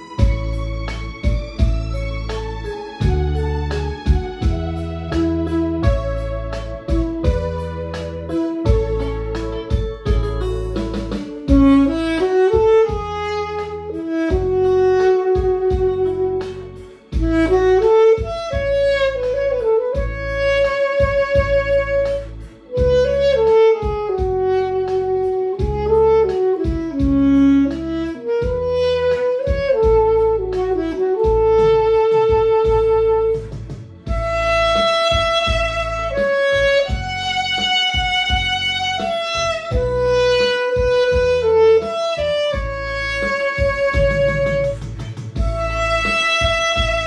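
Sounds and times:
backing track with steady beat: 0.0 - 47.0
saxophone melody: 0.0 - 47.0.

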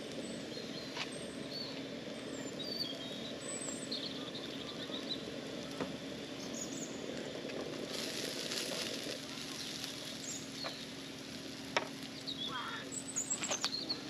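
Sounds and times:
low background rumble: 0.0 - 14.0
high bird chirps: 12.1 - 14.0.

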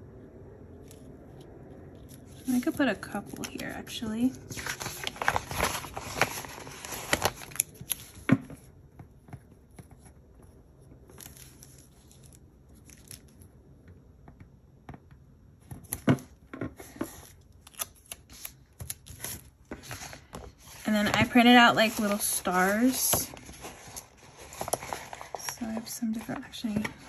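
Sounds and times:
paper crackles: 0.8 - 8.7, 15.6 - 27.0
paper rustling and crinkling: 0.8 - 13.4, 15.6 - 27.0.

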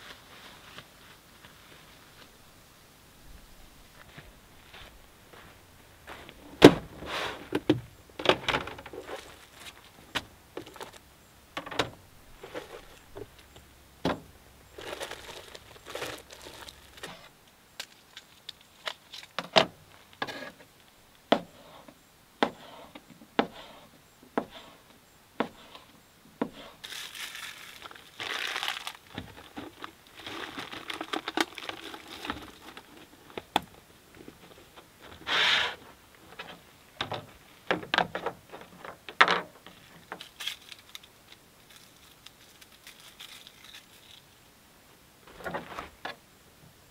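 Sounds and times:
plastic packaging crinkling: 14.7 - 19.4, 26.8 - 33.5, 39.8 - 44.3.

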